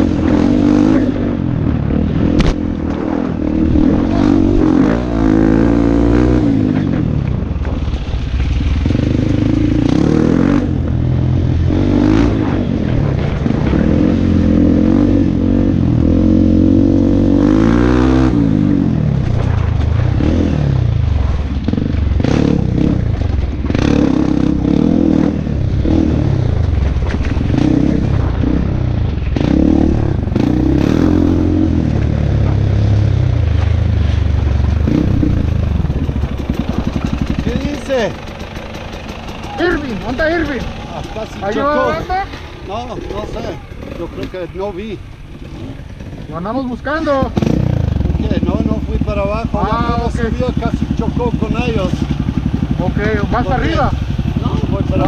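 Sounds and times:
motorcycle engine revving: 0.0 - 55.0
bike clattering over stones: 35.8 - 41.6.

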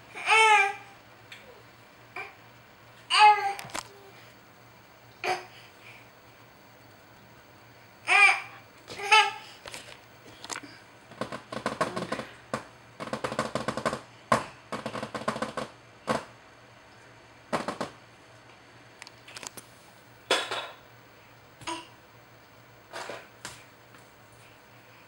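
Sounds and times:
rapid clicking and tapping: 11.1 - 16.3, 17.5 - 18.0.

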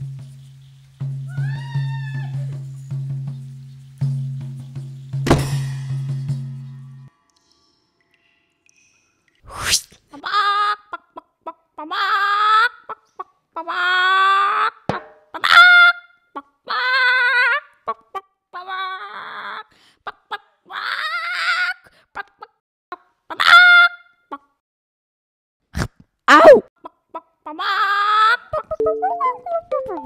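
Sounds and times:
chicken squawking: 20.7 - 22.3, 23.3 - 24.4.

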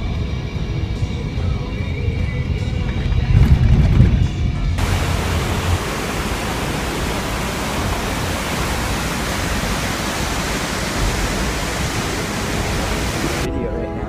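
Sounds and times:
whitewater rapids rushing: 4.8 - 13.5.

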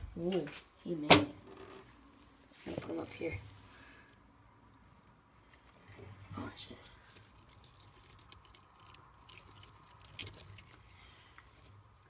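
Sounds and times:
lizard chewing with crunching clicks: 6.6 - 12.0.

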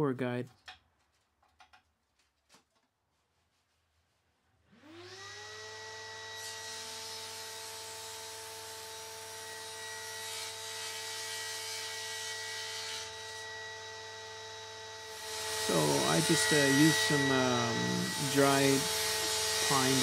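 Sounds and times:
table saw motor whine: 4.7 - 20.0
saw blade cutting wood: 15.1 - 20.0.

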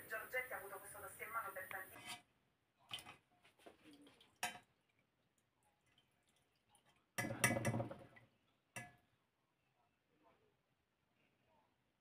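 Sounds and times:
dripping: 2.9 - 8.9.

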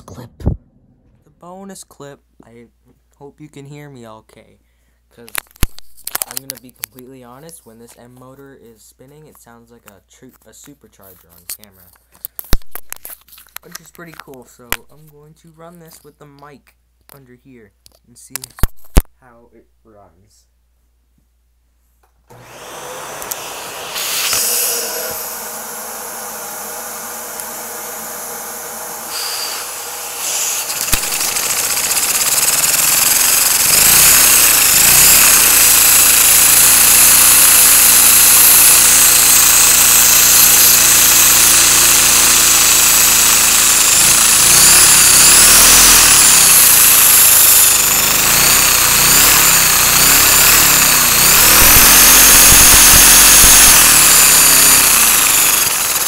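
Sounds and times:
click: 23.2 - 23.4
toy motor high whine: 23.2 - 56.0
fast mechanical rattle: 29.1 - 56.0.

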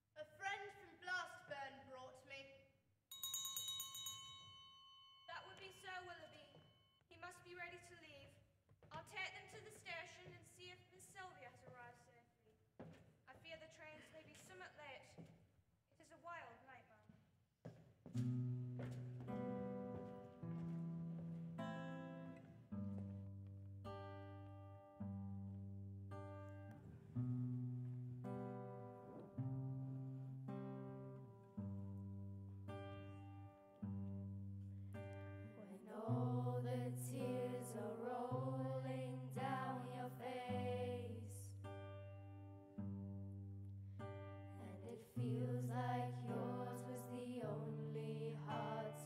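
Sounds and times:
acoustic guitar strummed chords: 18.2 - 49.0
person singing slow melody: 35.5 - 41.6, 44.6 - 49.0.

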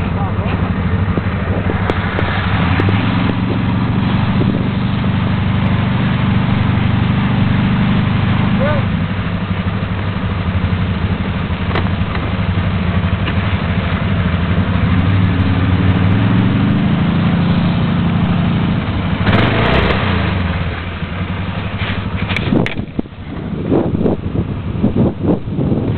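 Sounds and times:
atv engine idling: 0.0 - 25.9.

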